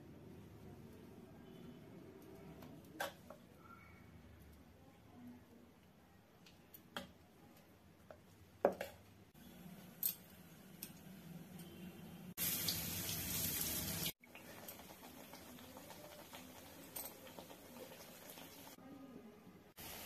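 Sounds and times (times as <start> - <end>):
food sizzling in hot oil: 12.4 - 18.8, 19.8 - 20.0.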